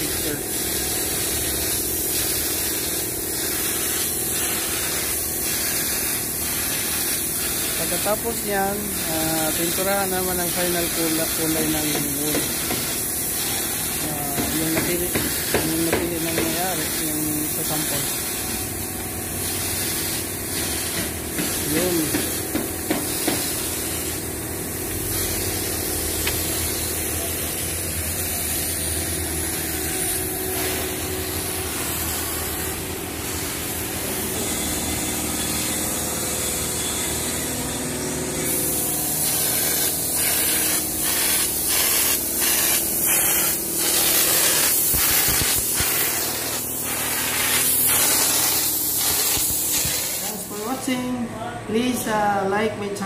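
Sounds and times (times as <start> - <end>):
paint spray machine hissing: 0.0 - 51.0.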